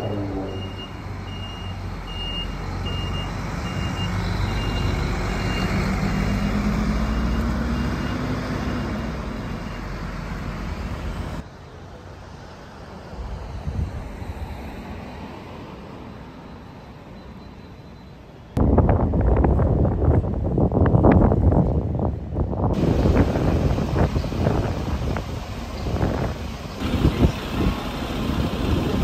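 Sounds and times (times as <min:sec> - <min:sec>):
diesel bus engine pulling away: 0:00.0 - 0:17.6, 0:22.8 - 0:29.0
street traffic: 0:00.0 - 0:29.0
high warning beep: 0:00.5 - 0:08.2.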